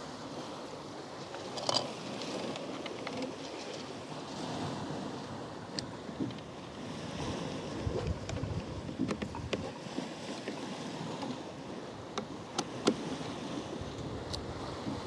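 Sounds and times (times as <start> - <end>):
rope clutch clicks and knocks: 1.3 - 3.9, 7.9 - 9.7, 12.1 - 13.0
wind buffeting microphone: 4.4 - 11.9, 12.6 - 15.0.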